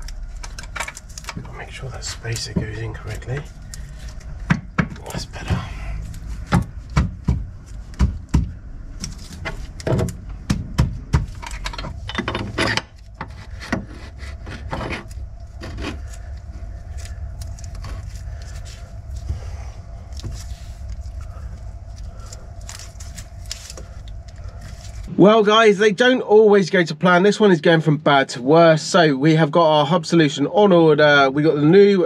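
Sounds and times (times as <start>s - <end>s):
low steady rumble: 0.0s - 32.0s
metal tools clinking and knocking: 11.4s - 13.0s.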